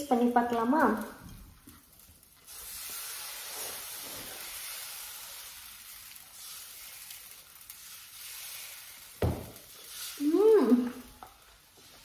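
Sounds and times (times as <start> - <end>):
batter sizzling on a griddle: 0.0 - 12.0
sudden knock: 9.2 - 9.5
woman humming mmm: 10.2 - 11.0.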